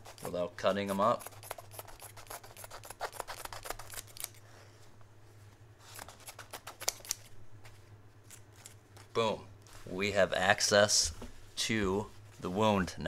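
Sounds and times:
shears snipping fabric: 0.0 - 4.4, 5.8 - 7.3.

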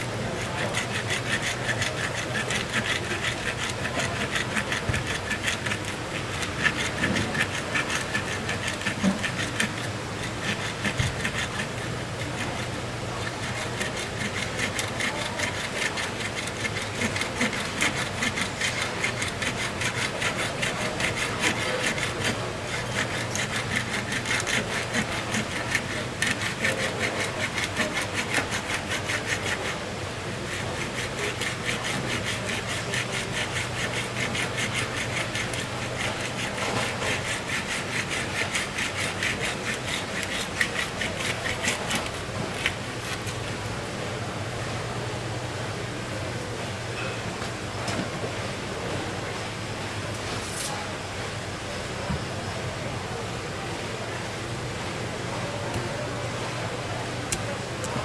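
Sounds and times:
hand tool rasping fish skin: 0.2 - 29.8, 30.4 - 43.4.

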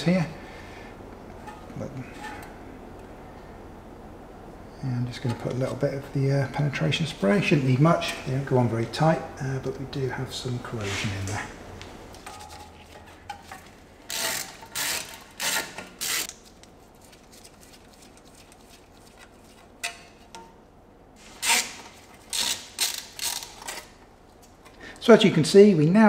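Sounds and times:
hand ratchet clicking: 14.1 - 16.4, 21.4 - 23.9.

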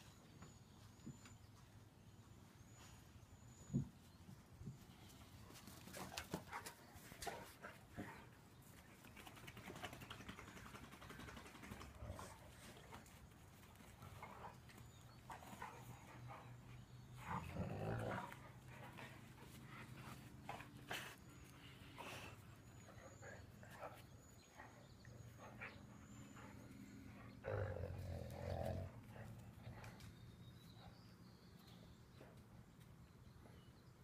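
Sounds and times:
dogs panting: 5.1 - 31.1
low dog noise: 11.8 - 31.3.

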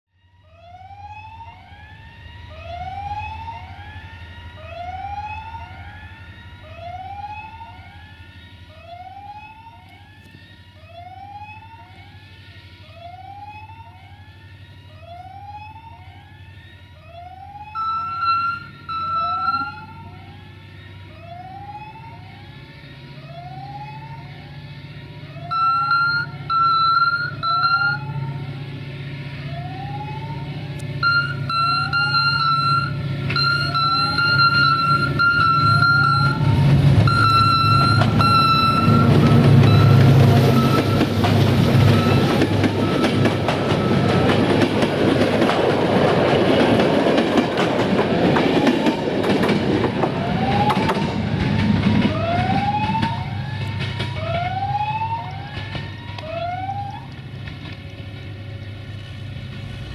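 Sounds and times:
diesel locomotive engine rumble: 0.4 - 59.9
electronic warning signal rising tone: 15.0 - 44.8
locomotive horn blasts: 31.0 - 41.2.

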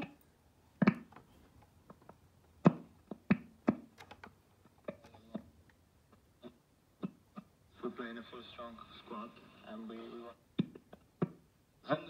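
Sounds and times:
sharp clicks and taps: 0.8 - 6.2.

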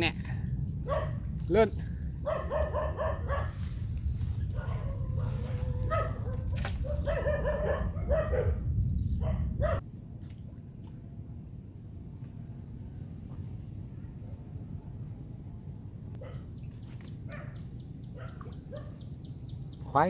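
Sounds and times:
low rumble: 0.0 - 16.2
dog barking: 0.8 - 1.2, 2.2 - 3.6, 4.5 - 8.6, 9.2 - 9.8, 16.2 - 16.5, 17.3 - 19.0.

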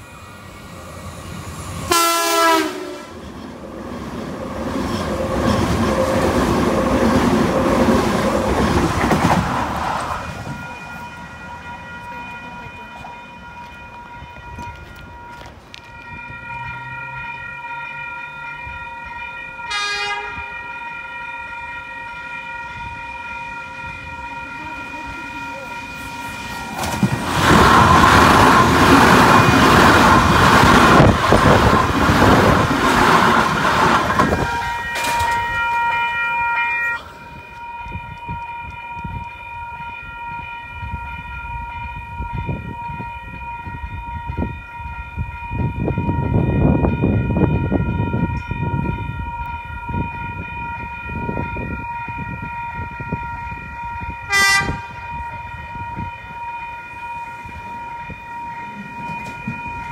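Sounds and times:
electric train passing at speed: 0.0 - 59.9
level crossing warning bells: 0.0 - 59.9
train horn toot: 1.9 - 3.2, 19.6 - 20.9, 34.2 - 41.2, 52.1 - 56.4.

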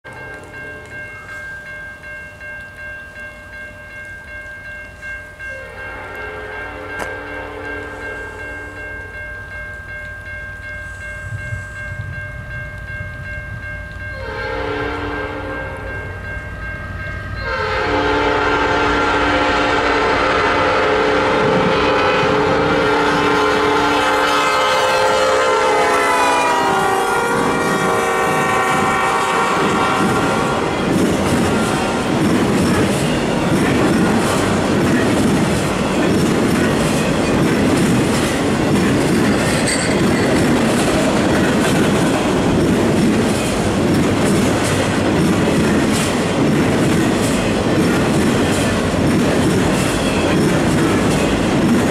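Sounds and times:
railroad crossing bell ringing: 0.0 - 51.9
train cars rolling by: 0.1 - 51.9
locomotive air horn: 14.2 - 15.9, 17.4 - 30.8.

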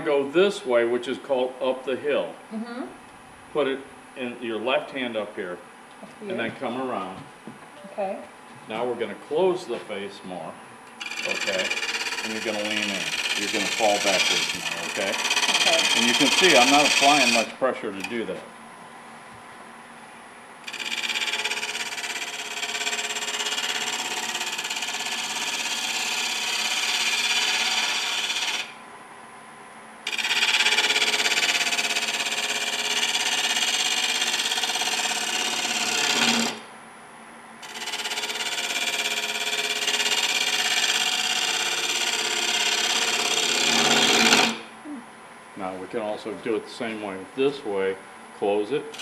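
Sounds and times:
lathe running: 10.9 - 18.2, 20.6 - 28.8, 30.0 - 36.6, 37.6 - 44.6
gouge scraping spinning wood: 11.0 - 18.4, 20.6 - 28.8, 30.0 - 36.6, 37.6 - 44.7.

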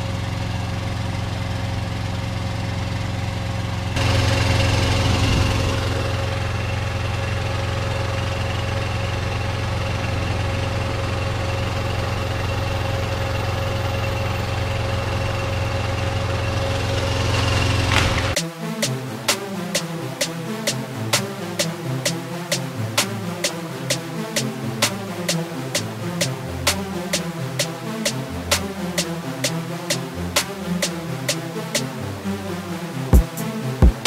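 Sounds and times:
diesel truck engine idling: 0.0 - 18.4.

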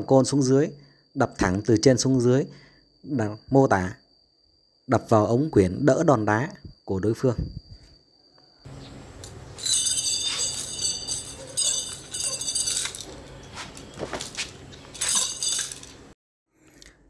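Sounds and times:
metal chain jangling: 9.3 - 16.1.

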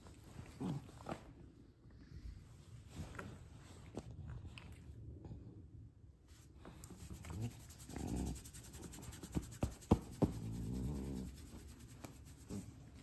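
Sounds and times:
hand scratching dog fur: 6.8 - 13.0.

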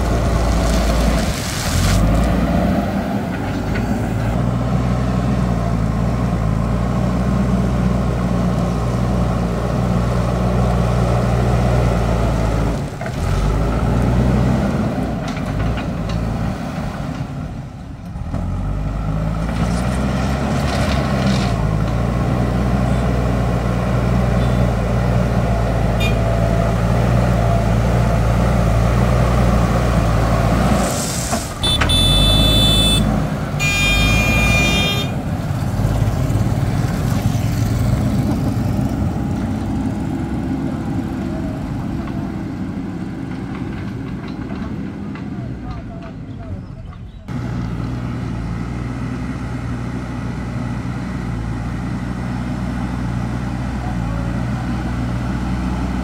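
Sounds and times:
bucket pushing gravel: 0.0 - 2.4
diesel engine running: 0.0 - 56.0
vehicle horn blasts: 26.0 - 26.3, 31.6 - 35.2.

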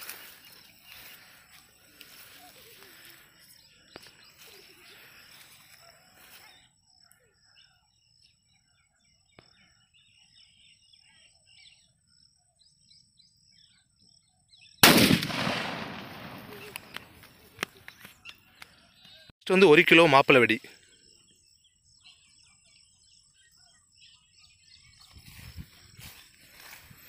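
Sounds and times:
birds chirping: 0.0 - 27.0
firecracker loud bang: 14.8 - 17.2.

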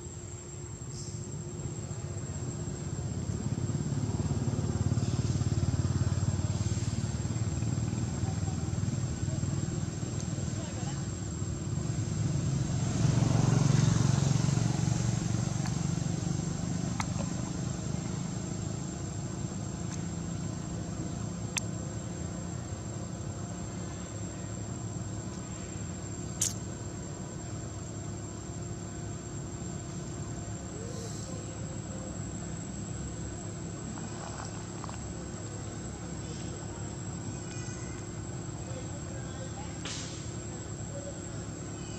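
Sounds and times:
vehicle engine running: 1.0 - 41.9
sharp clicks: 26.4 - 26.6.

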